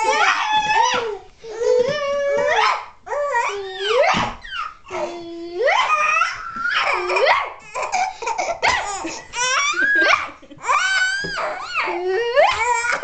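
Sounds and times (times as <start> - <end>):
baby laughing: 6.2 - 13.0.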